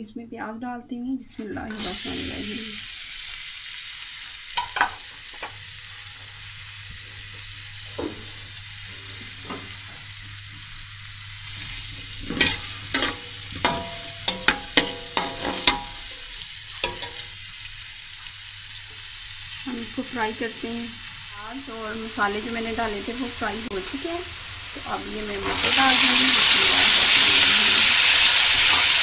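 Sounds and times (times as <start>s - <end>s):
onions sizzling in hot oil: 1.8s - 29.0s
metal spatula scraping a pan: 11.5s - 17.4s.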